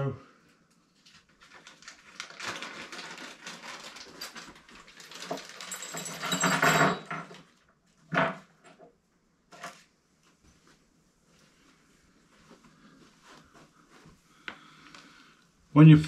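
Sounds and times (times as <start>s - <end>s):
metal parts clinking: 5.2s - 7.4s.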